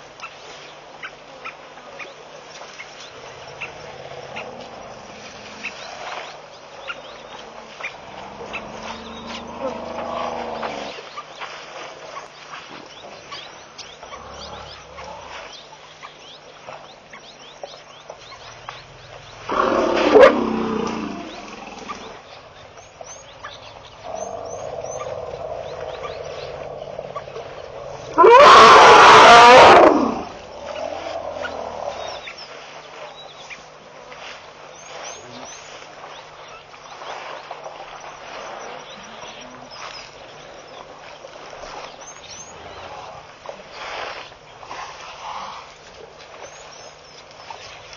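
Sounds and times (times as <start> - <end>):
elephants calling: 3.2 - 12.2, 18.4 - 33.1.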